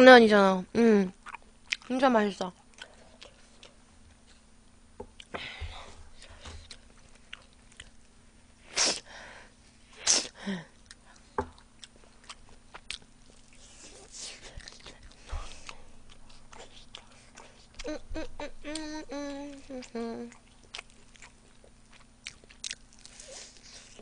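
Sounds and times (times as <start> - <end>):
person chewing: 1.2 - 1.9, 2.6 - 4.2, 6.1 - 8.1, 10.0 - 24.0.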